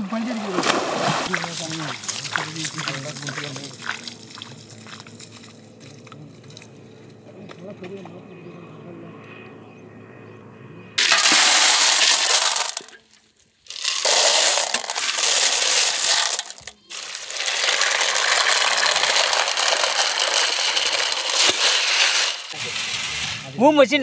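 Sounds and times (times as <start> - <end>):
water splashing: 0.0 - 5.6
snail shells clattering on metal plate: 11.0 - 13.1, 13.7 - 22.6.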